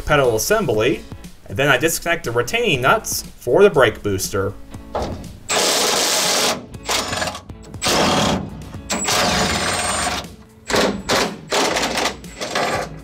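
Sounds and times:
cordless power driver bursts: 5.5s - 12.8s.

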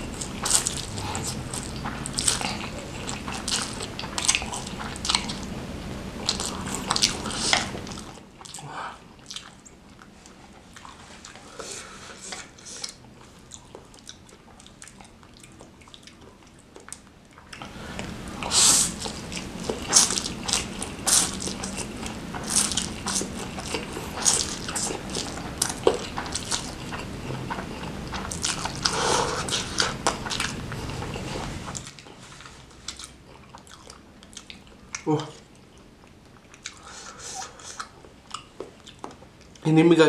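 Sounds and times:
slurping and chewing noodles: 0.0s - 5.6s, 6.2s - 39.7s.

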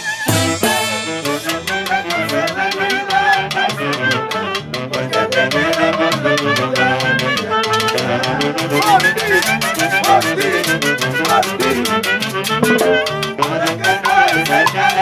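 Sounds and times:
fast drum and cymbal beat: 0.0s - 3.5s
festival band playing lively tune: 0.0s - 15.0s.

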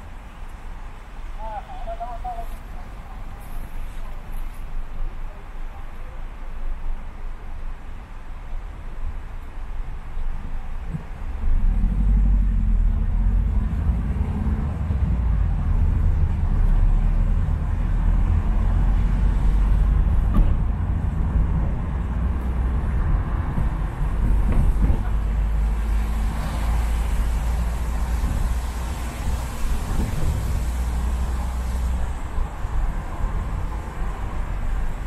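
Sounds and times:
wet road hiss: 0.0s - 11.4s, 25.0s - 35.0s
car engine and tyres rumbling: 0.0s - 35.0s.

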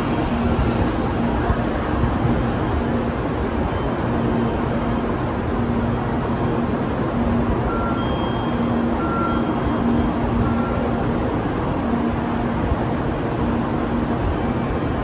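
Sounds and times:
short high beeps: 7.6s - 10.9s.

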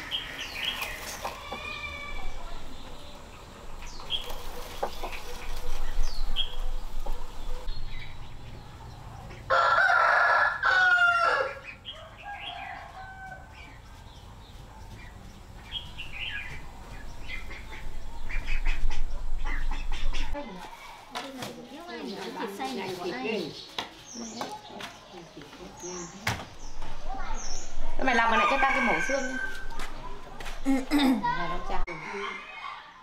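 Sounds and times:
chickens clucking and chirping: 0.0s - 10.3s, 11.5s - 20.9s
rooster crowing: 9.5s - 13.5s, 28.1s - 29.8s.

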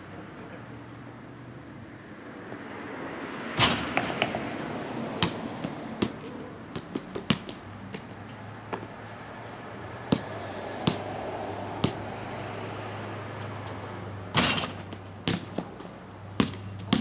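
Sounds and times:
basketball hitting hoop: 3.6s - 4.4s, 5.2s - 8.1s, 10.1s - 11.2s, 11.8s - 12.0s, 14.3s - 15.8s, 16.4s - 17.0s
basketball bouncing on concrete: 3.6s - 9.0s, 10.1s - 12.5s, 14.3s - 17.0s.

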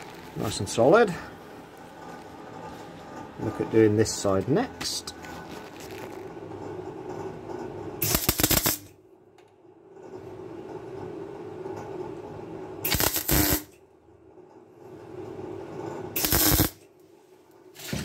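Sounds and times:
welder arc crackling: 0.0s - 2.5s, 8.0s - 9.0s, 12.9s - 13.8s, 16.2s - 16.8s
welder low hum: 8.0s - 9.0s, 12.6s - 13.8s, 15.0s - 16.8s.

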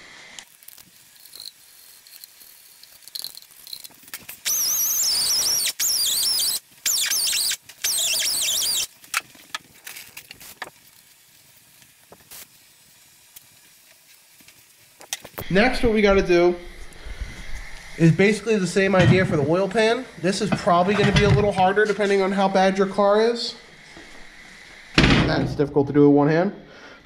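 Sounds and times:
high wavering squeal: 4.5s - 8.9s.

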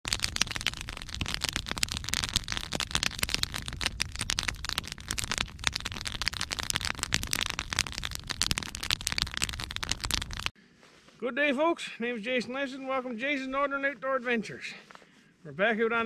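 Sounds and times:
log fire crackling: 0.0s - 10.6s
low rumble of flame: 0.0s - 10.6s.

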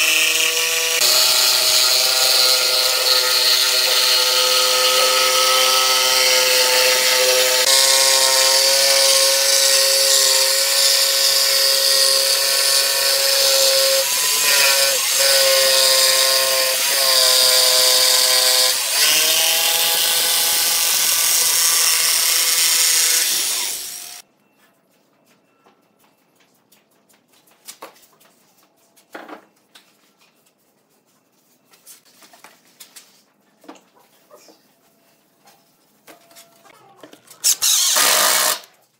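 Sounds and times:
jigsaw cutting wood: 0.0s - 24.2s, 37.4s - 38.7s.

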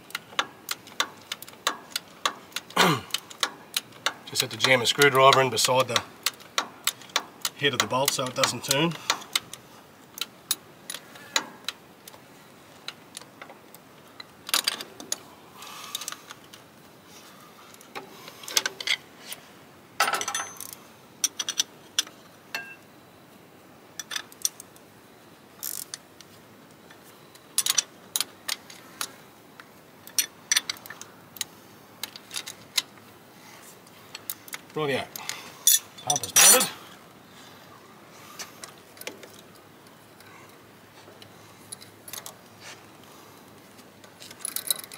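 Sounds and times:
ratchet spanner clicking: 0.4s - 9.5s, 25.6s - 26.0s
metal tools clinking: 20.0s - 21.7s, 35.6s - 36.8s.

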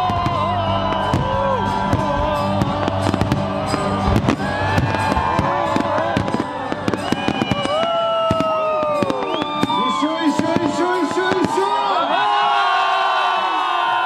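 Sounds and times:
firework bangs and crackles: 0.0s - 12.0s
firework whistles: 0.9s - 11.6s.

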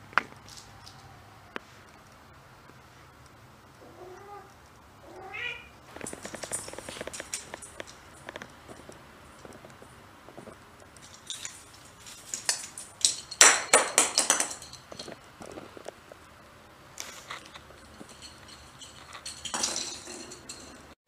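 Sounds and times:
ornament bouncing on wooden floor: 12.2s - 16.0s, 17.4s - 20.9s.

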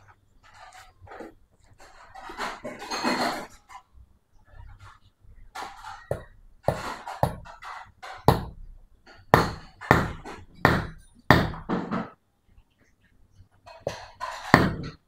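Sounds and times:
hammer striking metal: 6.1s - 7.5s, 8.2s - 8.6s, 9.4s - 11.9s.

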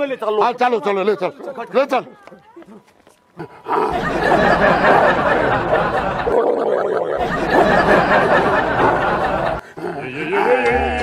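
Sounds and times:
crowd clamour: 3.8s - 11.0s.

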